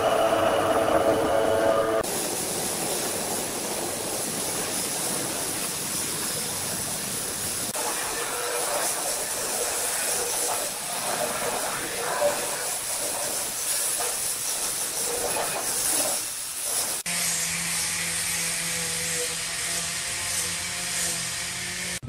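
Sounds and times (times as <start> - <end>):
machine hum: 0.0 - 4.2
stone grinding machine hissing grind: 7.6 - 22.0.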